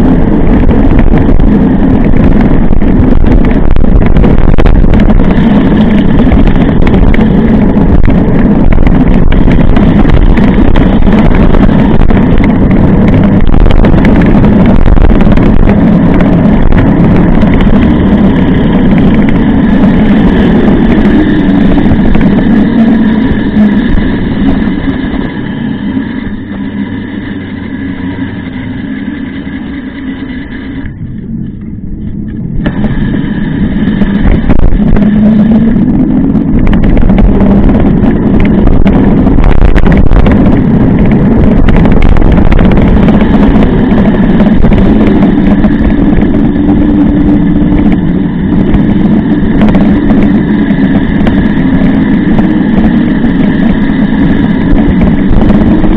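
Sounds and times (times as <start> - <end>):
bike tyre noise on road: 0.0 - 55.9
wind buffeting microphone: 0.0 - 55.9.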